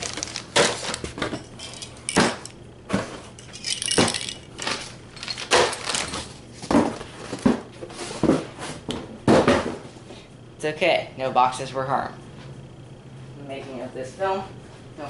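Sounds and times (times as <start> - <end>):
plastic bag crinkling: 0.0 - 2.4, 3.4 - 6.4.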